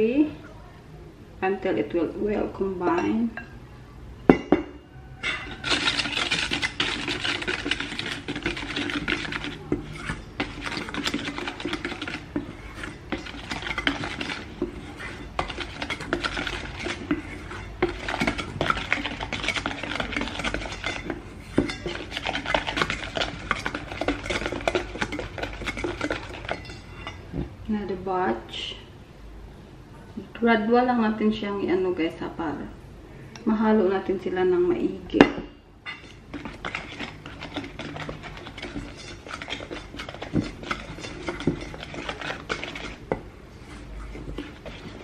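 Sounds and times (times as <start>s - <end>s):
whisk beating in a metal bowl: 5.2s - 27.2s, 35.9s - 45.0s.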